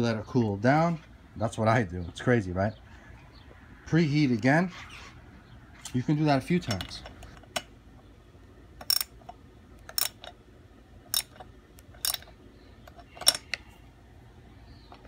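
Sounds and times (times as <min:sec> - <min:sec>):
clicks of small tools handled: 0:06.6 - 0:07.7, 0:11.1 - 0:13.6.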